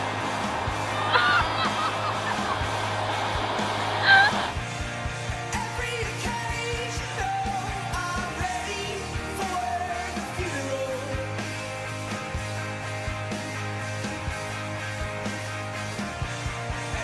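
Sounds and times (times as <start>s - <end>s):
pop-rock song with singing: 3.6s - 17.0s.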